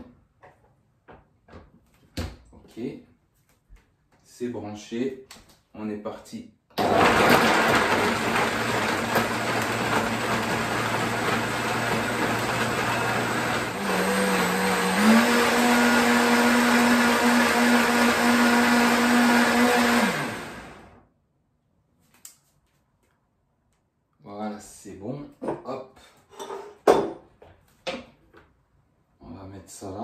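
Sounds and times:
blender motor hum: 6.8 - 21.0.

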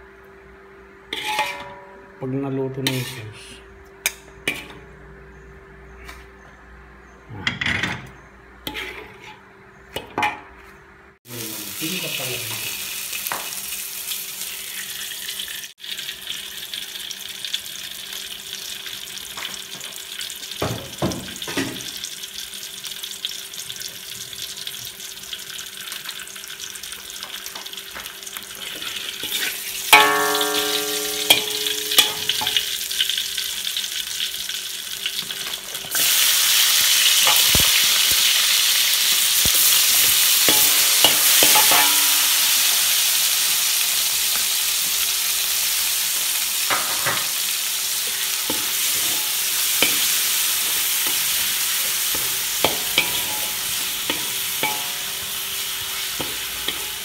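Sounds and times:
metal clank with ringing: 1.2 - 2.0, 30.0 - 32.7, 52.2 - 55.2
hot oil sizzling in a wok: 11.3 - 57.0
metal spoon stirring: 28.6 - 32.7, 48.4 - 57.0
spoon knocking on wok: 29.9 - 32.7, 52.1 - 55.3, 56.2 - 57.0.

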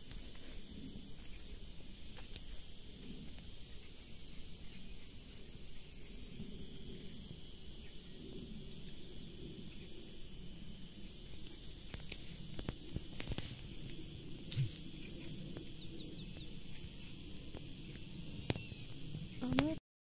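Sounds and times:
high-pitched insect chorus: 0.0 - 19.8.

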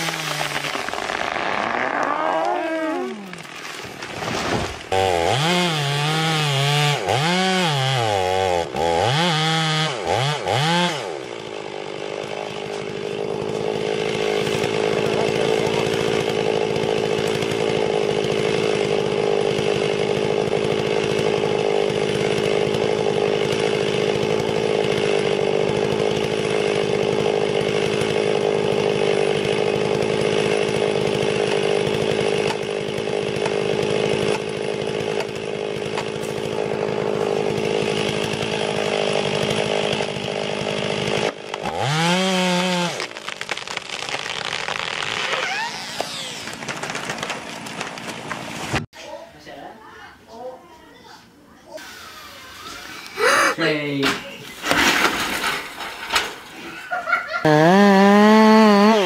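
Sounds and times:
chainsaw engine revving: 0.0 - 48.9, 51.8 - 59.0.

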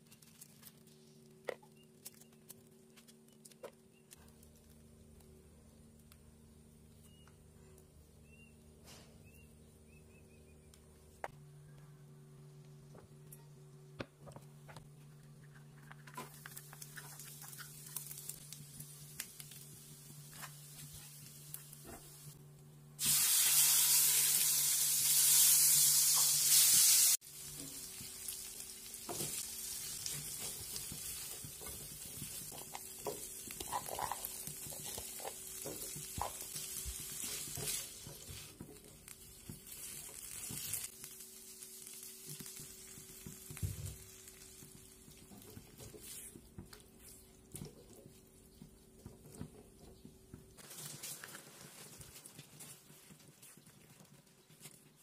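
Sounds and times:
loud hissing sizzle: 23.0 - 45.2
food sizzling in a wok: 23.0 - 45.3
stirring clicks and scrapes: 31.4 - 36.4.

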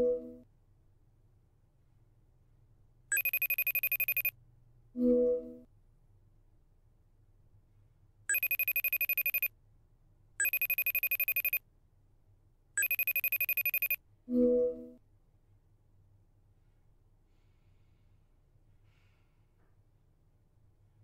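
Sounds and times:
pulsing ringback tone: 3.1 - 4.3, 8.3 - 9.5, 10.4 - 11.6, 12.8 - 14.0.

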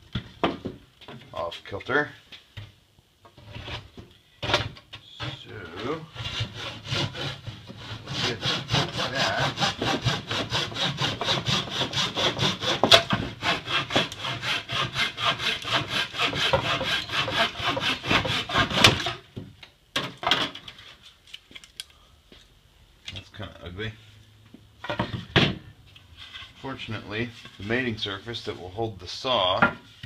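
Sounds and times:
hand tool rasping on wood: 5.2 - 19.2.

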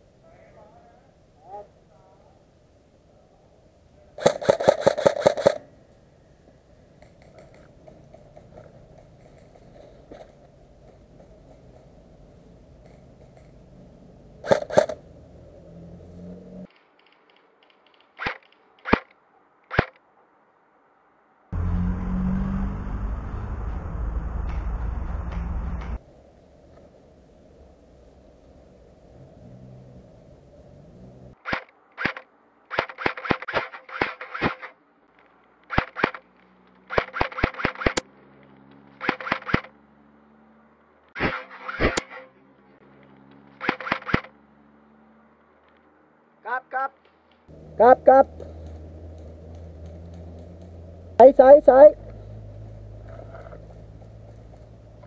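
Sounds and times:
airsoft rifle shots: 4.2 - 5.7, 14.4 - 15.0, 16.7 - 20.0, 31.4 - 34.8, 35.6 - 38.1, 38.9 - 39.8, 41.2 - 42.3, 43.5 - 44.4
steady rumbling noise: 21.5 - 29.3.

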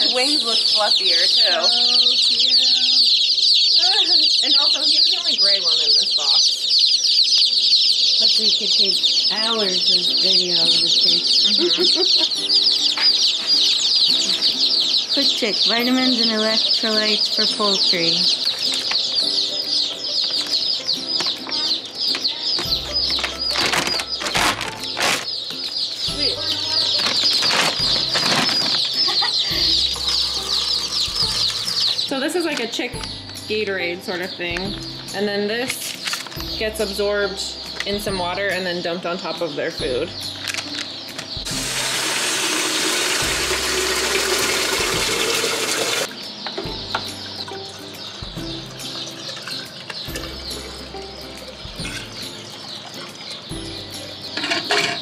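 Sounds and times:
baby chicks peeping: 0.0 - 45.2, 46.0 - 55.0
paper bag rustling: 22.9 - 25.3, 26.7 - 29.4
tap water filling a pitcher: 41.6 - 46.0.

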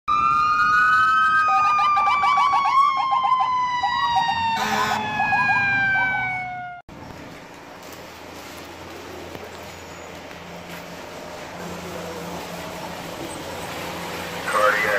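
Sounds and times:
electronic siren yelp: 0.1 - 6.8
siren tone falling in pitch: 0.1 - 6.8
harsh horn blast: 4.6 - 5.0.

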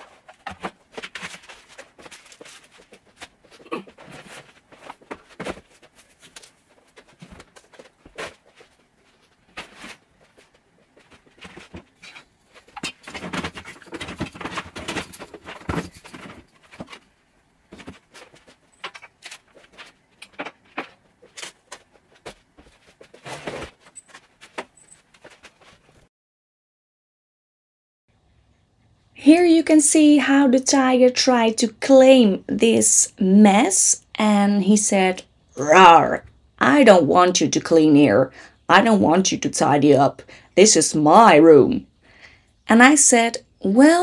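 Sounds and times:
household clutter knocks and clinks: 0.0 - 26.0.

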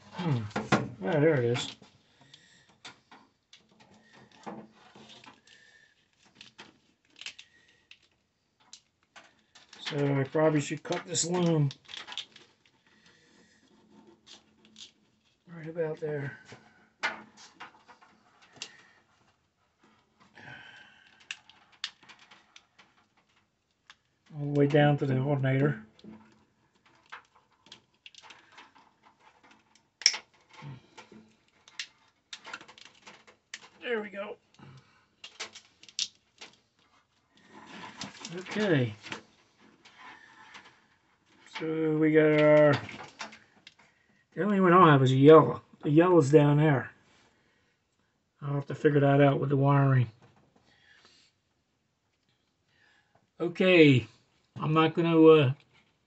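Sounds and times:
wire and plastic loom rustling: 0.0 - 15.5, 21.0 - 24.3, 25.6 - 33.8, 34.4 - 43.9.

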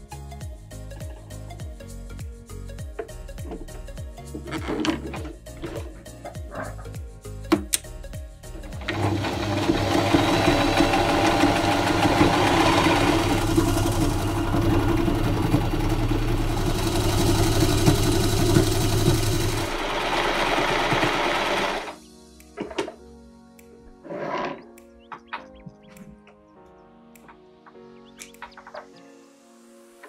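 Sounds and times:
sewing machine stitching: 8.7 - 22.0.

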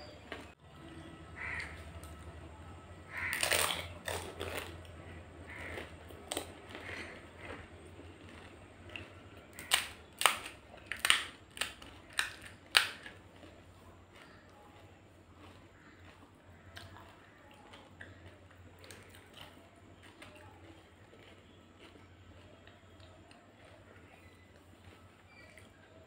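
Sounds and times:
crisp shells crunching while chewing: 3.0 - 26.0
sharp cracks of brittle shells: 3.1 - 4.8, 9.5 - 13.2.

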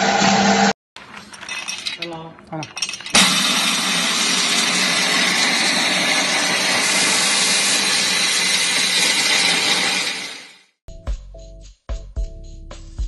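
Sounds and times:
grater whirring and grinding: 3.2 - 10.6.

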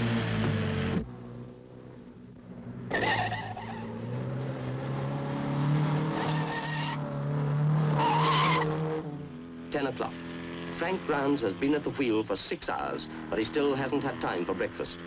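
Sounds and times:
car engine revving: 0.0 - 15.0
tyres squealing: 7.9 - 8.7.

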